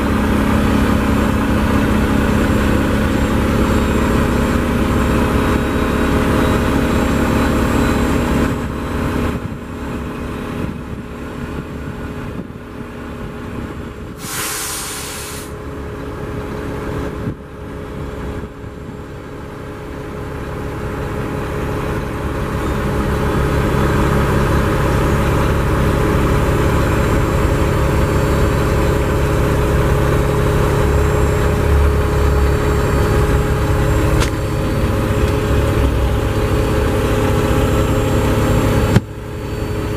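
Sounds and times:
diesel engine idling: 0:00.0 - 0:39.9
short hiss: 0:14.2 - 0:15.6.

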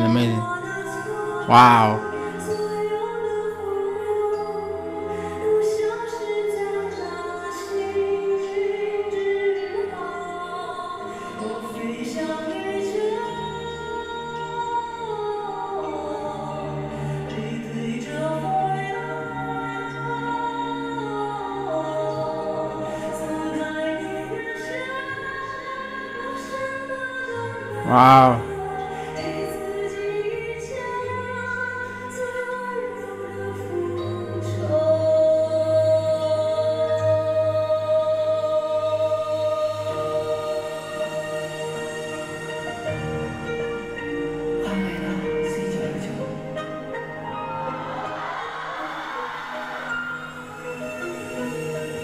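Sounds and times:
man singing pop ballad: 0:00.0 - 0:00.5, 0:01.4 - 0:02.2, 0:27.8 - 0:28.5.

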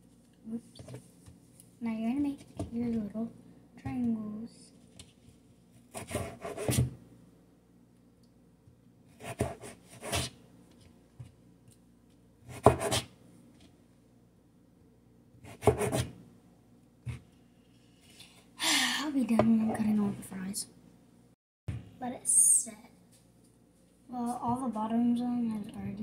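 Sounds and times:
knife cutting on plastic board: 0:05.9 - 0:06.9, 0:09.1 - 0:10.4, 0:12.4 - 0:13.1, 0:15.4 - 0:16.2.

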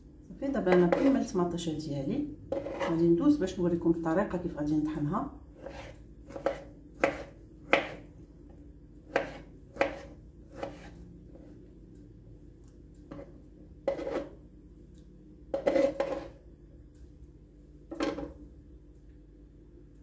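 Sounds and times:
knife cutting on wooden board: 0:02.5 - 0:03.0, 0:05.6 - 0:08.0, 0:09.1 - 0:11.5, 0:13.9 - 0:14.3, 0:15.5 - 0:16.4.

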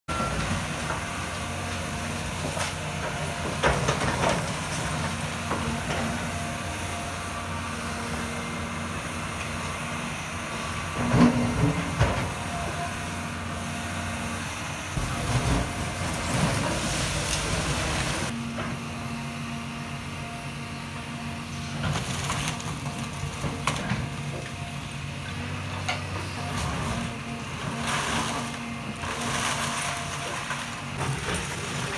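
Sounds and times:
excavator diesel engine running: 0:00.1 - 0:31.9
masonry and debris crashing down: 0:15.0 - 0:18.3.

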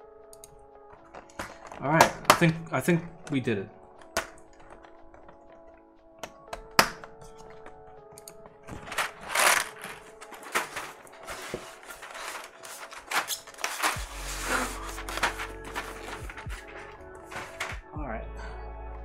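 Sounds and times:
quiet background music: 0:00.0 - 0:19.0
plastic keycaps clattering: 0:08.7 - 0:14.2.

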